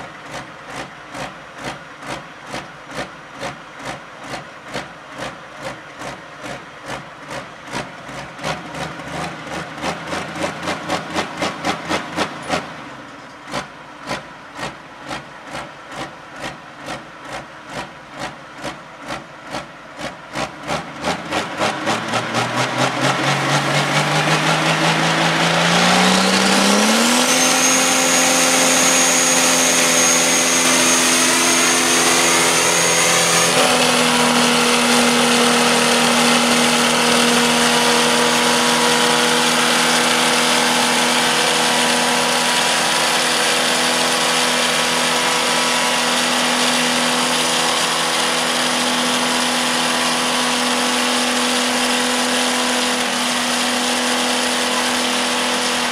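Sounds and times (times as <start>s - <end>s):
diesel engine chuffing and revving: 0.0s - 55.9s
turbo whine: 22.5s - 55.9s.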